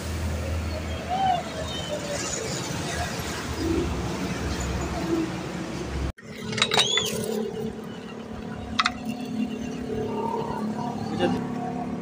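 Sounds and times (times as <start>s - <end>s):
short squeak: 6.6s - 7.4s.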